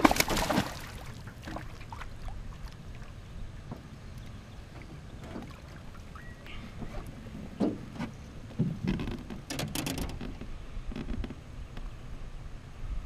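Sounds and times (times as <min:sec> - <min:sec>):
fish thrashing and splashing: 0:00.0 - 0:02.7
low wash of water: 0:00.0 - 0:07.9.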